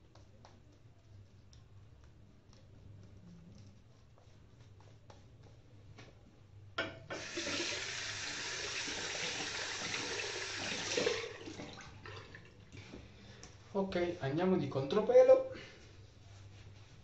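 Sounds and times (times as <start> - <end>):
shaving brush strokes: 0.0 - 6.5, 15.9 - 17.0
tap water running into sink: 6.8 - 12.9.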